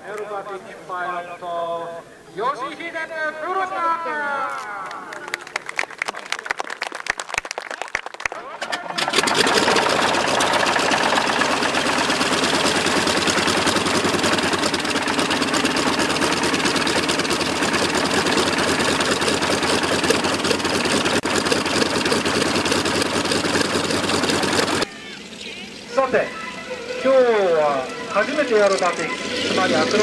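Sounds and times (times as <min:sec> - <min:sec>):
radial piston engine running: 0:08.6 - 0:30.0.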